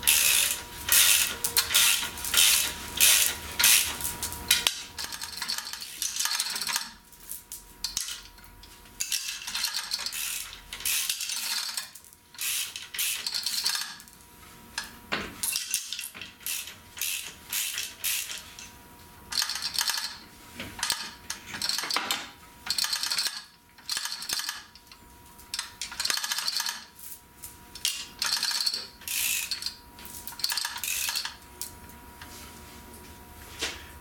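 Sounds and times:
metallic chain ratcheting: 9.0s - 14.0s, 22.7s - 24.7s, 25.6s - 26.9s, 27.8s - 31.4s.

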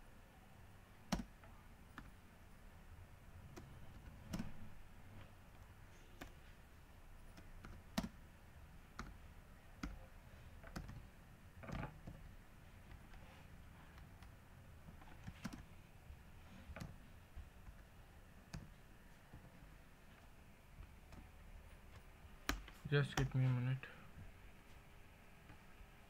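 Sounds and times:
keyboard and mouse clicks: 1.1s - 2.2s, 3.4s - 4.7s, 7.3s - 8.2s, 8.9s - 9.2s, 10.6s - 12.3s, 13.9s - 15.8s, 16.5s - 18.8s.

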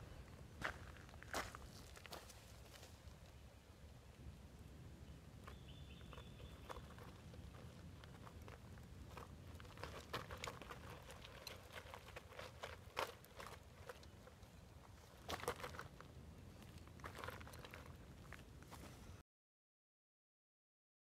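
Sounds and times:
tyres crunching over gravel: 0.6s - 3.2s, 5.4s - 19.0s.

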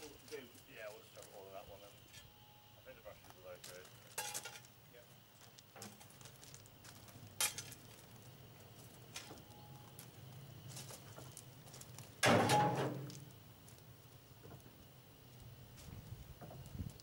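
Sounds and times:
shovel clattering into steel wagon: 12.2s - 13.2s.

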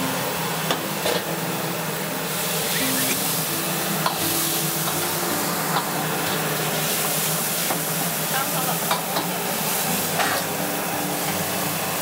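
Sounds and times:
food sizzling in wok: 0.0s - 12.0s.

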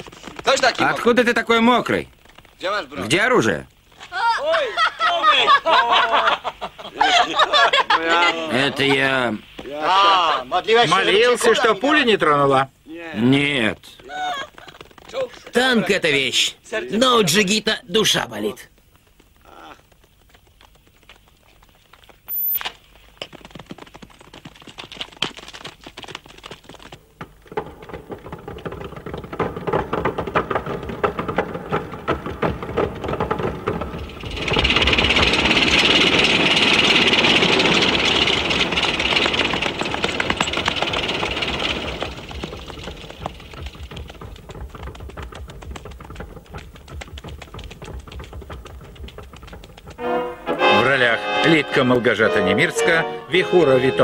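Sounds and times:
tank tracks clattering: 0.0s - 4.1s, 13.6s - 54.0s
tank engine running: 27.6s - 50.7s.

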